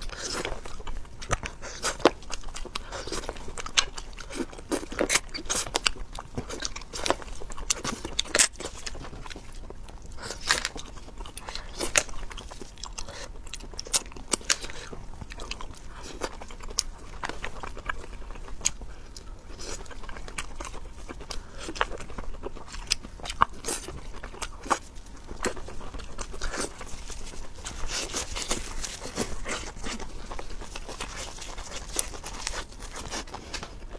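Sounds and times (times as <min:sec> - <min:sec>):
biting and chewing crunchy food: 0:00.0 - 0:33.9.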